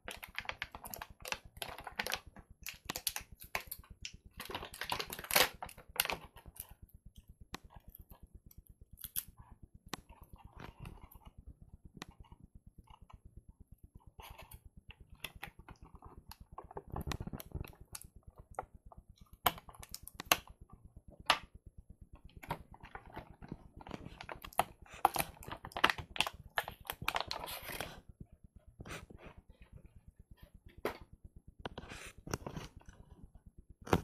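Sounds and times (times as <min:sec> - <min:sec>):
plastic packaging crinkling: 0:00.0 - 0:06.6, 0:22.9 - 0:28.0.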